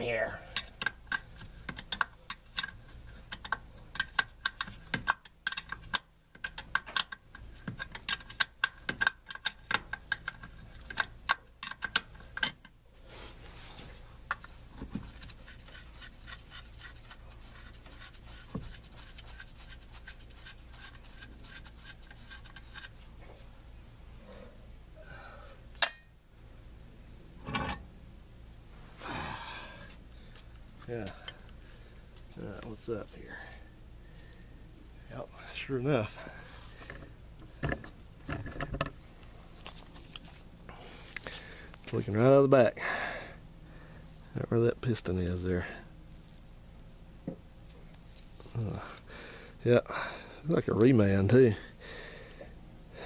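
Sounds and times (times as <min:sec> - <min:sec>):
low steady hum: 0:00.0 - 0:53.0
hand tools clicking on metal: 0:00.5 - 0:12.8.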